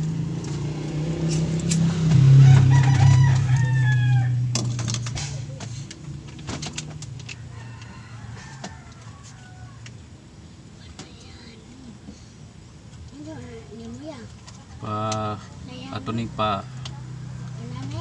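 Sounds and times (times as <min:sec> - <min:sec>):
passing vehicle engine: 0:00.0 - 0:09.0, 0:14.8 - 0:18.0
rooster crowing: 0:02.2 - 0:04.6, 0:07.3 - 0:10.0.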